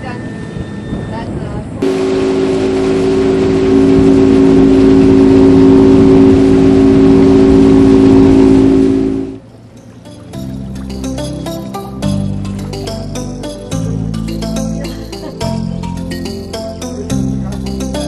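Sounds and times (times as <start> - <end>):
wind: 0.0 - 18.0
water rushing: 1.8 - 13.1
motorboat engine humming: 1.8 - 18.0.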